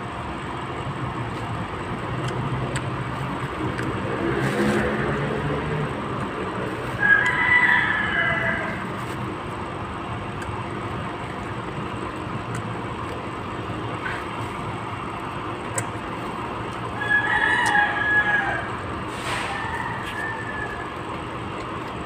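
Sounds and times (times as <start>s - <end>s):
rooster crowing: 6.9s - 9.2s, 17.0s - 21.2s.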